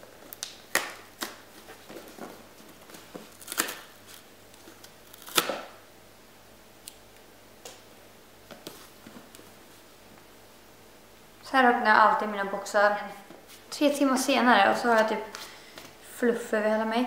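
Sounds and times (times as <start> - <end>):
cardboard tearing and rustling: 0.7 - 5.7.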